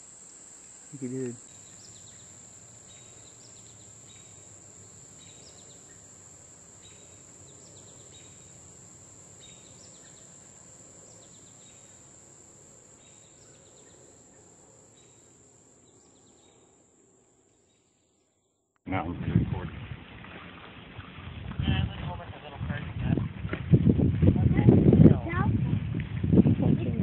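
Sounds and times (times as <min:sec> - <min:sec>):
high insect drone: 0:00.0 - 0:18.1.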